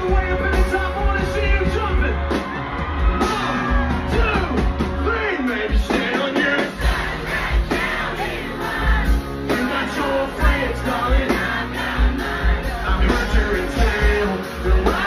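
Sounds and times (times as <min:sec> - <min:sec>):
singing: 0:05.2 - 0:15.0.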